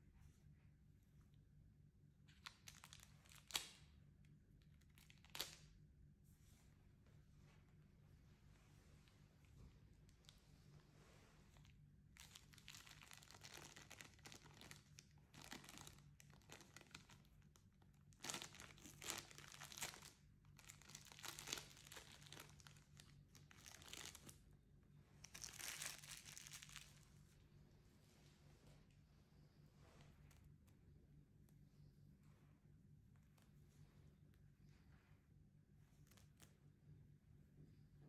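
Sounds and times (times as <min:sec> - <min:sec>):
plastic bag crinkling: 0:02.4 - 0:03.8, 0:12.2 - 0:24.4, 0:25.2 - 0:27.0.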